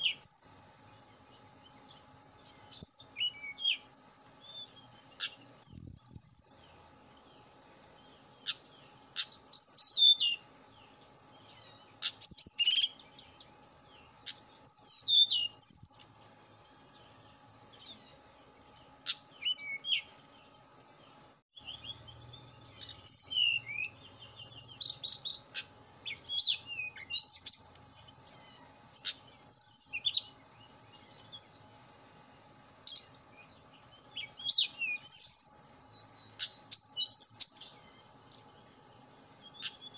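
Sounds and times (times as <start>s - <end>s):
bird singing whistled phrases: 2.5s - 6.6s, 9.2s - 10.4s, 11.3s - 13.3s, 14.3s - 16.0s, 19.1s - 20.1s, 21.6s - 31.4s, 32.8s - 38.0s.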